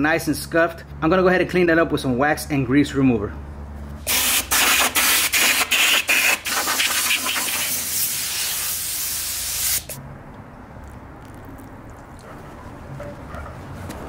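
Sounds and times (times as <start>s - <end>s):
spray bottle spraying: 4.1s - 10.0s.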